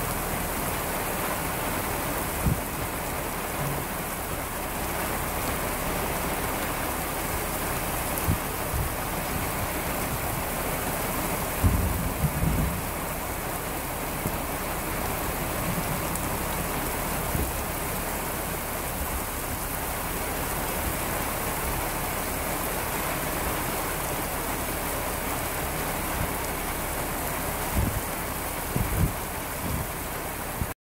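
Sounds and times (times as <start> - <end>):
heavy rain falling: 0.0 - 30.8
short low thumps: 11.5 - 13.1.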